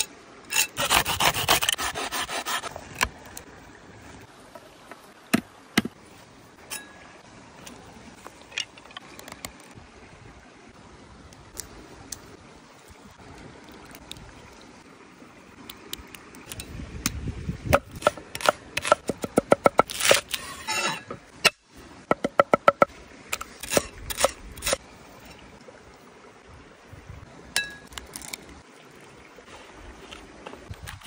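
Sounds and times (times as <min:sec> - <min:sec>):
blade scraping board: 0:00.5 - 0:02.8, 0:19.8 - 0:21.2.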